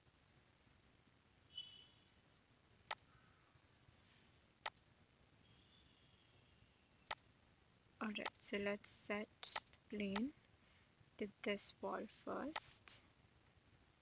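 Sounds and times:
computer mouse clicks: 2.9s - 3.1s, 4.6s - 4.9s, 8.2s - 8.4s, 12.5s - 12.9s.

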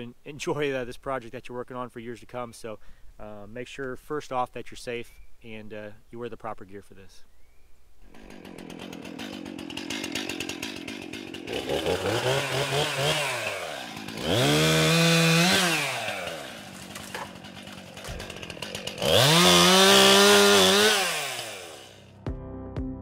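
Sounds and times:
chainsaw idling and revving: 8.0s - 22.2s.

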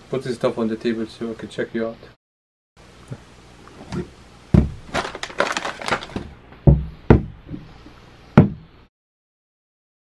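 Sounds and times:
items knocking on counter: 4.0s - 7.6s, 8.4s - 8.6s.

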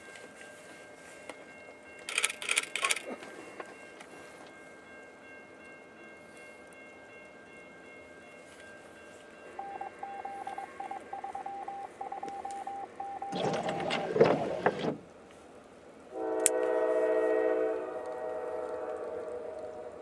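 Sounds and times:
rapid high electronic beeping: 9.6s - 13.4s
locomotive air horn: 16.1s - 20.0s.

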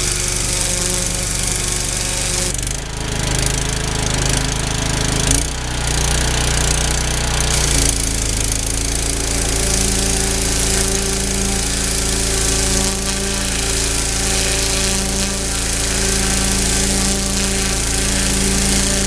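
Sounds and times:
pressure washer hum: 0.0s - 19.0s
water jet hissing: 7.5s - 19.0s.

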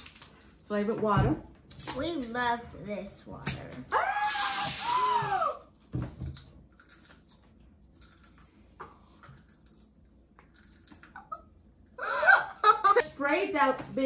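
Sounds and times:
potato chips crunching: 0.0s - 0.6s, 6.6s - 11.4s.

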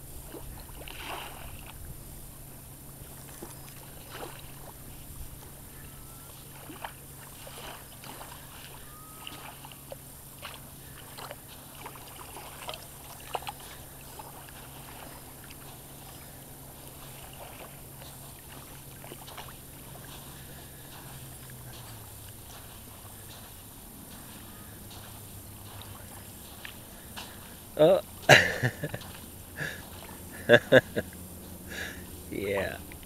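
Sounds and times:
low steady hum: 0.0s - 33.0s
dogs splashing in water: 6.4s - 27.6s.

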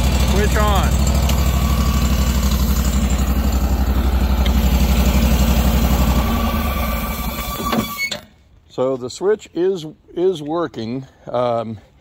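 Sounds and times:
engine idling and shutting off: 0.0s - 8.5s.

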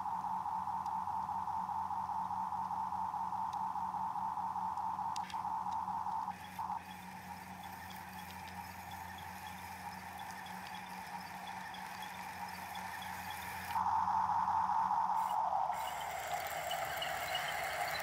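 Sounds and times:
electric motors whining: 5.2s - 13.8s, 15.2s - 18.0s.

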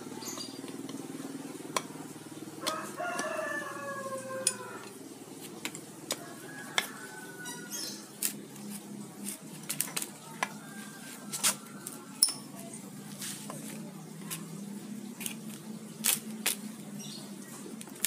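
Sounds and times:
rooster crowing: 2.6s - 5.0s, 6.2s - 8.1s, 10.2s - 12.2s.

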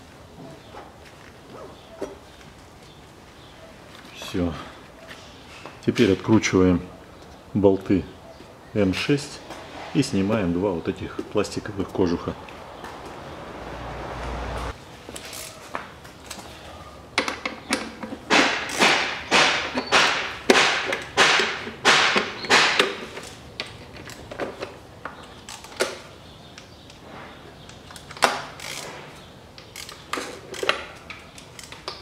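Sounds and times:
tool and bolts knocking: 17.2s - 23.2s
ratchet wrench clicking: 27.9s - 28.9s, 29.6s - 32.0s.

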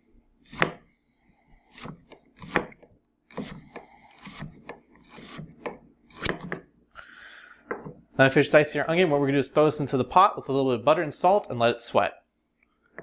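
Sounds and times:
knife chopping on wooden board: 0.5s - 0.9s, 1.7s - 6.6s.

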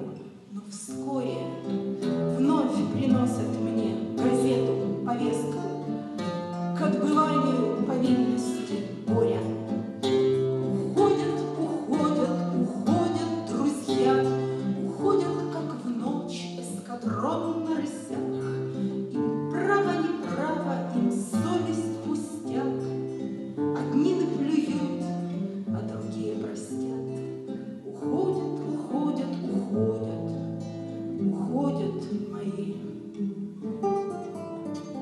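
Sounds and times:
woman singing: 0.0s - 6.0s, 6.8s - 23.0s, 23.8s - 25.1s, 25.7s - 30.4s, 31.2s - 33.0s
classical guitar chords: 0.0s - 35.0s.

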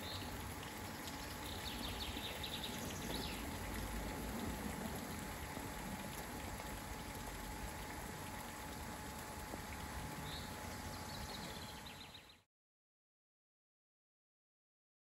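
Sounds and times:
water rushing over a weir: 0.0s - 11.8s.

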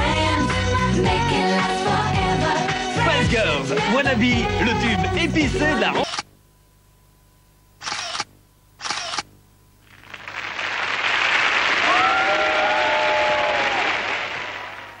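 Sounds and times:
applause and cheering: 10.0s - 15.0s.

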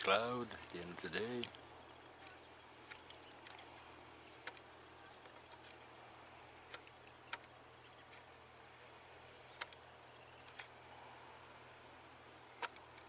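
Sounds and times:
faint ticks: 2.2s - 3.8s, 4.4s - 5.8s, 6.6s - 8.3s, 12.5s - 13.0s.

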